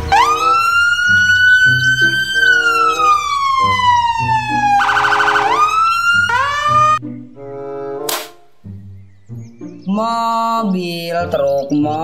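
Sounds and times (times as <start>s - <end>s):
police siren wailing: 0.0s - 7.0s.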